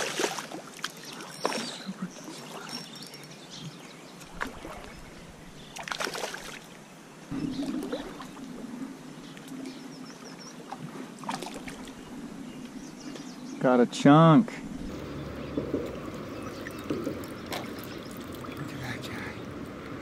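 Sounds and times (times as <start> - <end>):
fish splashing at water surface: 5.8 - 6.7, 15.4 - 18.6.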